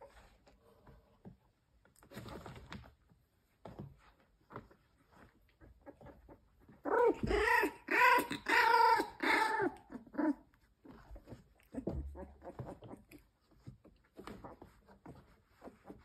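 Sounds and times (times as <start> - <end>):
puppies scuffling: 0.0 - 7.7, 10.4 - 16.0
puppy growling yelps: 5.8 - 10.6.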